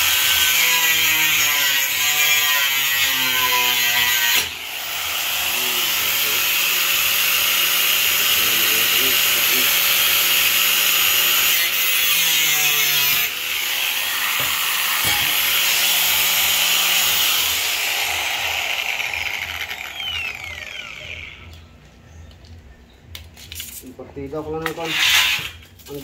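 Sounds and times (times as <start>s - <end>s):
angle grinder cutting steel: 0.0s - 21.6s, 24.7s - 25.6s
grinder disc spinning down: 16.3s - 21.6s.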